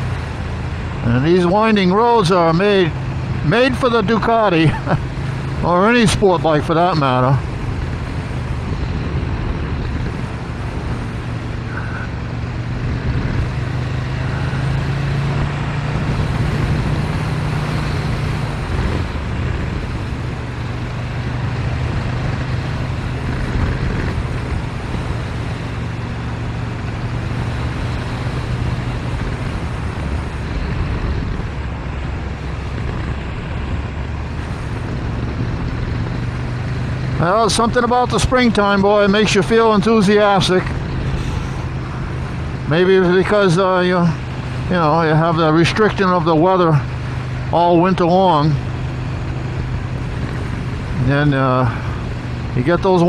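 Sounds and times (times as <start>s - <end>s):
motorcycle engine riding: 0.0s - 53.0s
wind noise: 7.4s - 37.2s.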